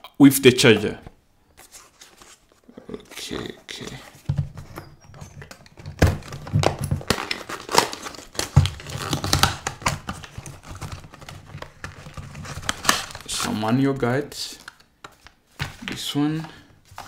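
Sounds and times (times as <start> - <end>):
cardboard packaging crinkling: 4.2 - 13.8.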